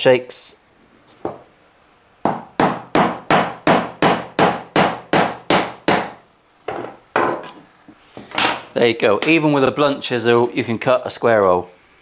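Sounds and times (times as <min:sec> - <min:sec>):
hammer striking chisel: 0:02.3 - 0:06.2.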